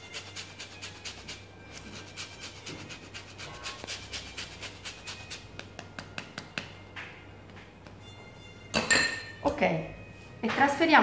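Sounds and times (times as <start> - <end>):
peel grated on metal grater: 0.0 - 5.4.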